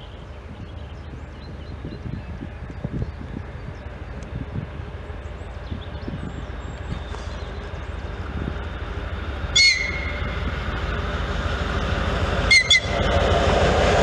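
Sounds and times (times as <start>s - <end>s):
diesel locomotive rumble: 0.0s - 14.0s
locomotive whistle blasts: 9.6s - 10.4s, 12.4s - 13.1s.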